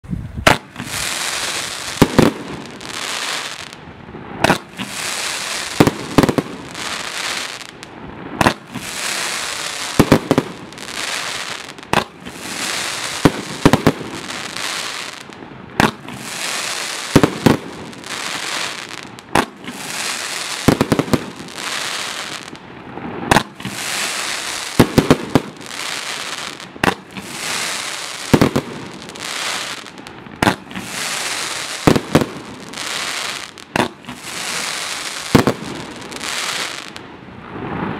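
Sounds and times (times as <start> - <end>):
firework launch bangs: 0.4 - 1.1, 15.8 - 16.3, 23.2 - 23.9
firework crackling: 0.4 - 37.9.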